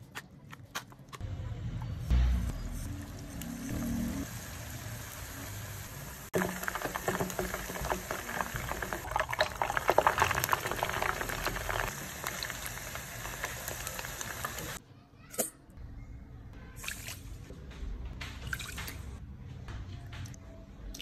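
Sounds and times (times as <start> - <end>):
chicken deep-frying in oil: 2.0 - 14.8.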